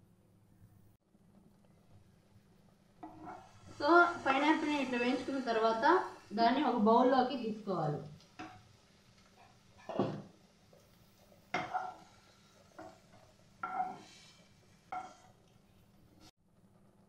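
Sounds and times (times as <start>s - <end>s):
spatula scraping frying pan: 3.0s - 6.2s, 11.5s - 15.5s
spatula knocking on pan and bowl: 9.8s - 10.3s, 11.5s - 12.1s, 13.6s - 14.1s.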